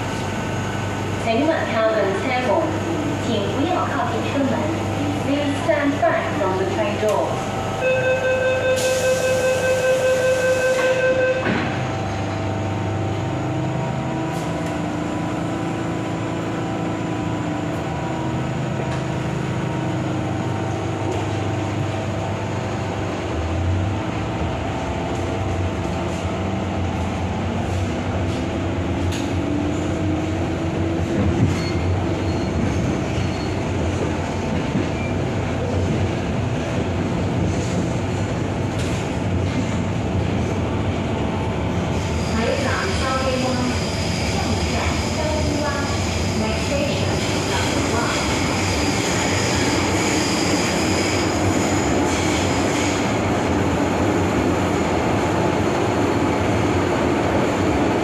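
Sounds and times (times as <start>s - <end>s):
train motor whine: 7.5s - 11.8s.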